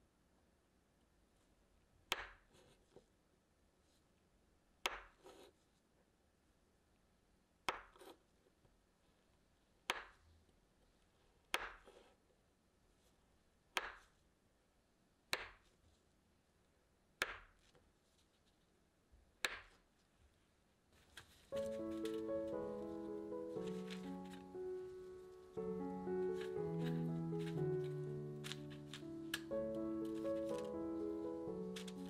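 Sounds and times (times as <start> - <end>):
knife slicing dough: 4.8 - 5.6.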